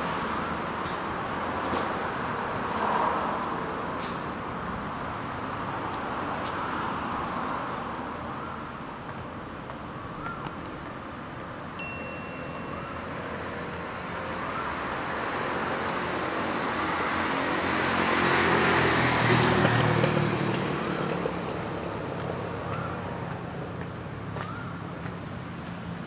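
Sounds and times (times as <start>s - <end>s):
metallic ding: 11.8s - 13.1s
vehicle passing: 12.6s - 24.3s.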